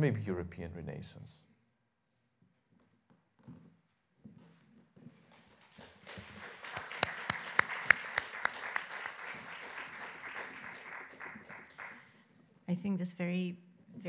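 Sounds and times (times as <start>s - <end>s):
audience applauding: 5.2s - 12.2s.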